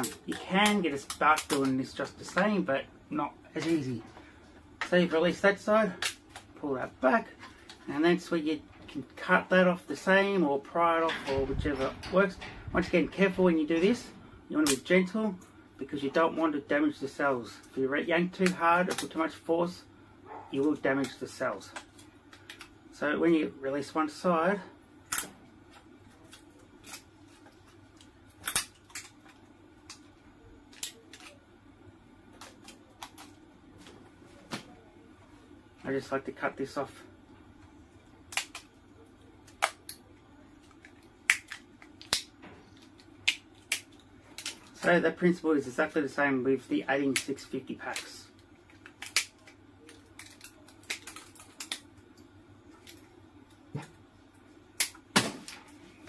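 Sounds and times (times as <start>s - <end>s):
plastic parts clicking and snapping: 0.0s - 2.4s, 21.0s - 22.8s, 25.1s - 25.4s, 26.2s - 30.1s, 30.7s - 31.4s, 32.3s - 34.7s, 38.0s - 38.8s, 39.4s - 44.9s, 47.1s - 53.1s.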